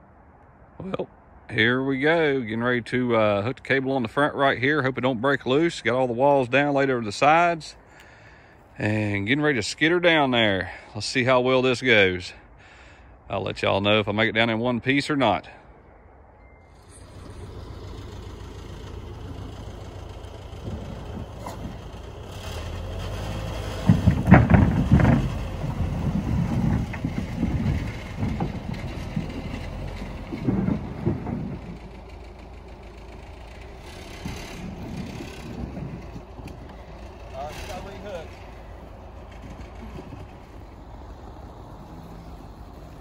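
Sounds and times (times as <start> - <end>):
suv engine running: 16.6 - 43.0
platform scraping over dirt: 16.7 - 43.0.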